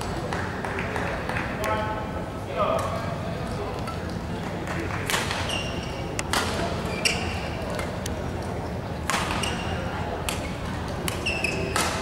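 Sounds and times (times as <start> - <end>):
shoes squeaking on court: 5.3 - 8.0, 8.6 - 12.0
racket hitting shuttlecock: 9.0 - 10.4, 11.0 - 12.0.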